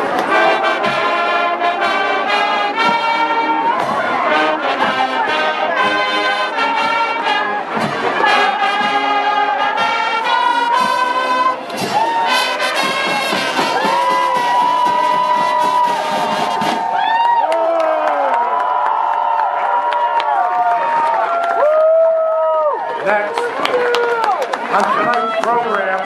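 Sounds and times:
brass instruments playing: 0.0s - 17.0s
marching drums: 0.0s - 17.0s.

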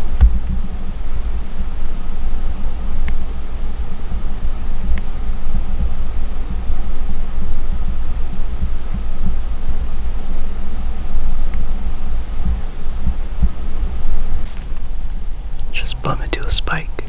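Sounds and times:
faint tick: 4.9s - 5.1s.

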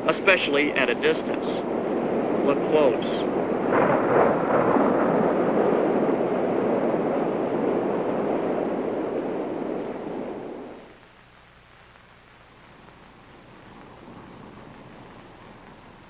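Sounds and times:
rushing wind: 0.0s - 11.0s.

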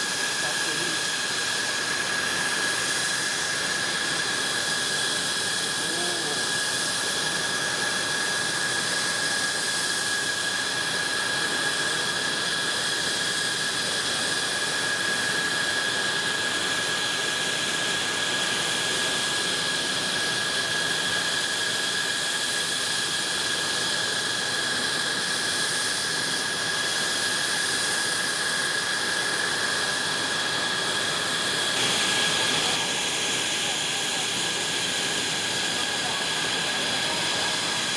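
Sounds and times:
jet engine idling: 0.0s - 37.9s.

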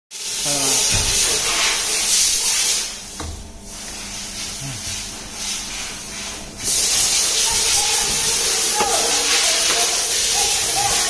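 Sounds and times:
steam hissing: 0.2s - 3.1s, 3.7s - 11.0s.

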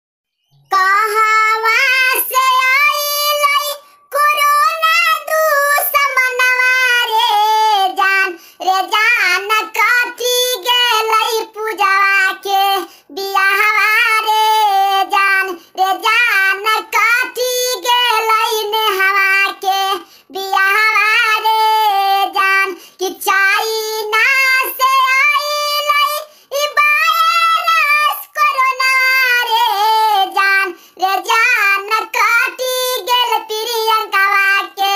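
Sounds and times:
high-pitched cartoon cat voice singing: 16.0s - 34.9s.

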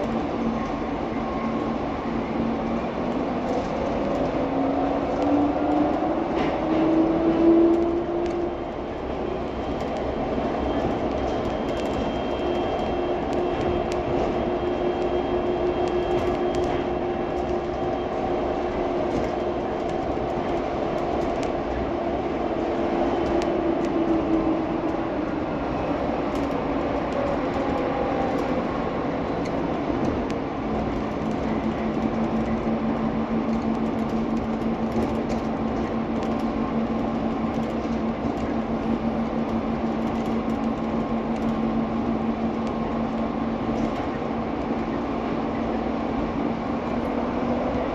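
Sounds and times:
train running noise: 0.0s - 47.9s.

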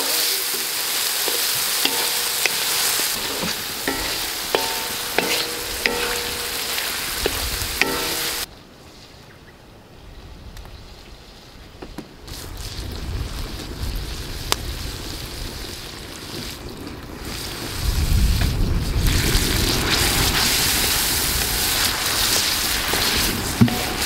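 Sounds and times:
meat sizzling in a wok: 0.0s - 8.5s, 12.3s - 24.0s
spatula knocking against pan: 1.8s - 8.5s.

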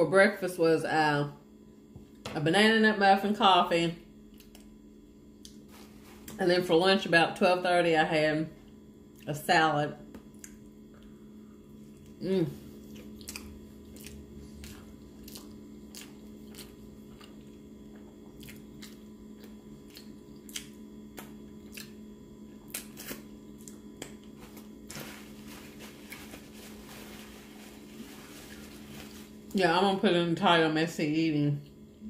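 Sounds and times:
steady low hum: 0.0s - 32.0s
paper napkin rustling: 5.7s - 6.4s, 24.4s - 29.9s
close-up chewing: 12.8s - 22.0s.

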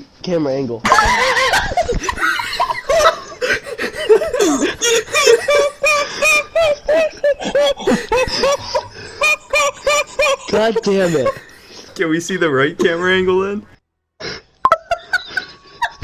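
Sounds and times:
person laughing high-pitched: 0.9s - 11.4s.

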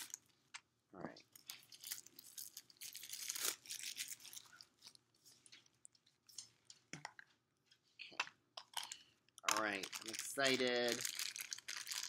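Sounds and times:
plastic crinkling: 1.3s - 6.8s, 8.8s - 12.0s.

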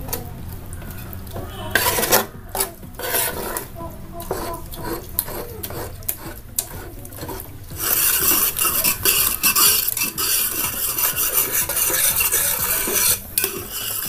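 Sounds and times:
metal spoon stirring thick mixture: 0.0s - 14.0s.

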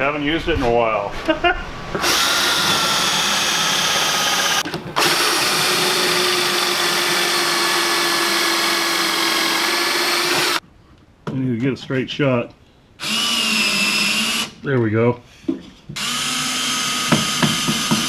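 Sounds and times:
cordless drill whine: 2.0s - 10.6s, 13.0s - 14.5s, 16.0s - 18.0s.

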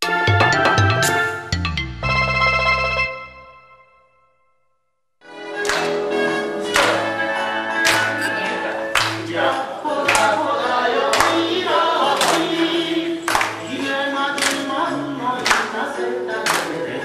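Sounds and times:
group singing along with music: 5.3s - 17.0s
hand claps: 5.6s - 6.0s, 6.8s - 7.0s, 7.8s - 9.3s, 10.0s - 10.4s, 11.1s - 11.5s, 12.1s - 12.6s, 13.3s - 13.7s, 14.3s - 14.7s, 15.4s - 15.8s, 16.4s - 16.8s.

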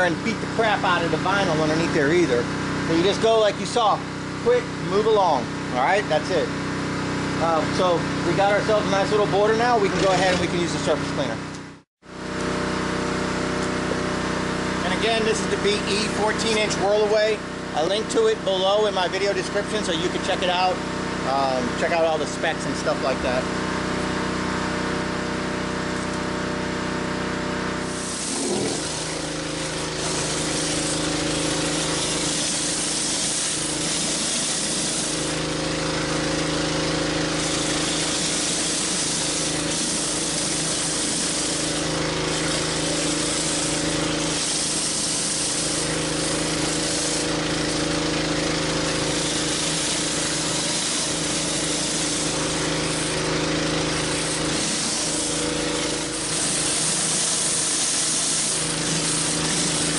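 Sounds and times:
pressure-washer engine running: 0.0s - 59.9s
water spray hissing on concrete: 27.9s - 59.9s.

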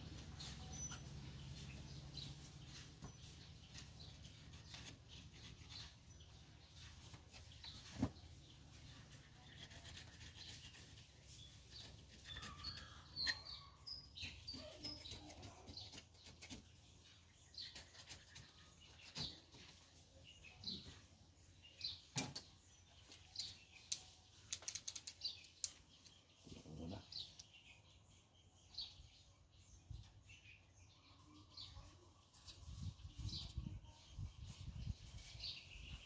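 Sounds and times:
birds chirping faintly: 0.0s - 36.0s
knife scraping coconut husk: 3.7s - 6.2s, 9.0s - 16.7s.

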